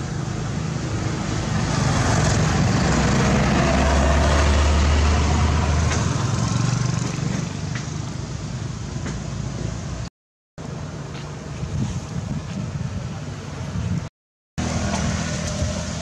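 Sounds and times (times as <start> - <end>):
vehicle passing: 0.0 - 8.4, 14.6 - 16.0.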